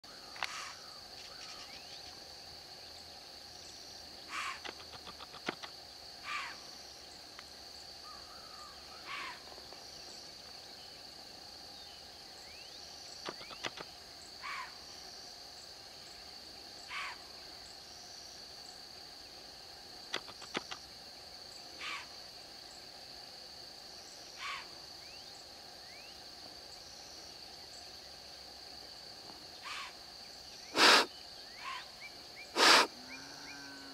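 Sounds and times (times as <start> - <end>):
bird calls: 4.2 - 6.6, 12.4 - 14.8, 29.6 - 33.2
sharp clicks: 4.6 - 5.7, 13.2 - 13.9, 20.1 - 20.8
high-pitched insect drone: 24.0 - 33.9.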